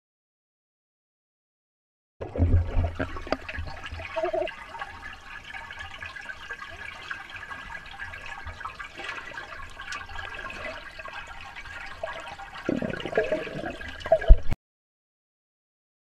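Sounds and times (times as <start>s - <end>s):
bubbling churned water: 2.2s - 14.6s
faint ticks: 9.7s - 10.4s.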